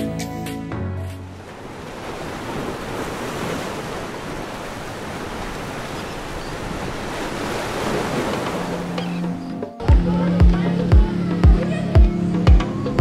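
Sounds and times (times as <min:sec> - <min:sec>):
surf breaking on sandy beach: 0:01.4 - 0:09.1.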